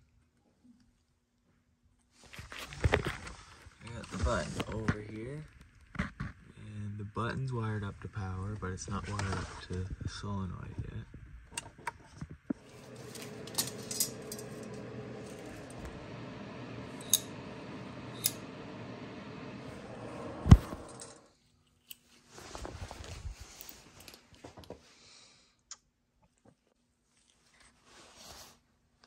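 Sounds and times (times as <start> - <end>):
steady hum: 6.6 - 21.3
metal tools clinking: 12.6 - 15.5.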